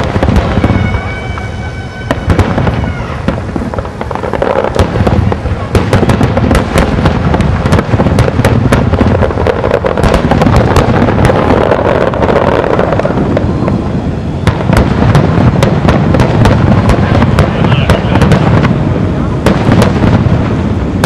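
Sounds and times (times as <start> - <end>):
continuous rumble: 0.0 - 21.0
fireworks bangs and crackles: 0.0 - 21.0.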